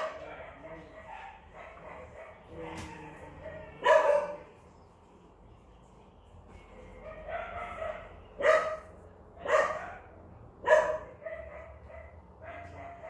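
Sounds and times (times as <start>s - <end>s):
dog barking: 0.0s - 4.5s, 7.0s - 13.0s.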